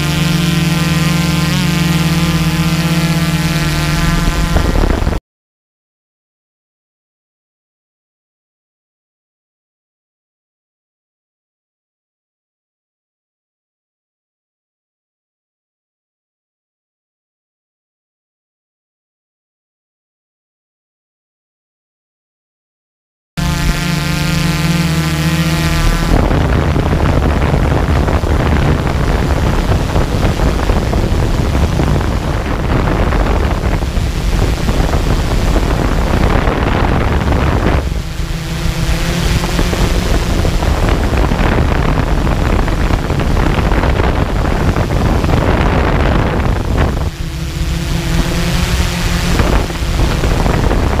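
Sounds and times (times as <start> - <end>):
drone rotor hum: 0.0 - 5.2, 23.4 - 51.0
wind rush on microphone: 0.0 - 5.2, 23.4 - 51.0.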